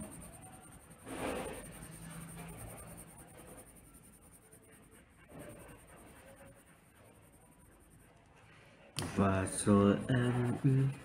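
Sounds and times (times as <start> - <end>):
pencil scratching on paper: 0.0 - 8.3.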